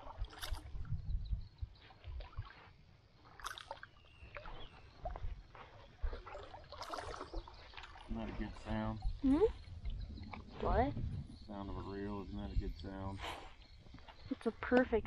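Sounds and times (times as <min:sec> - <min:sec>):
water splashing around boat: 0:00.0 - 0:00.9, 0:01.9 - 0:11.9
low rumble: 0:08.1 - 0:13.2.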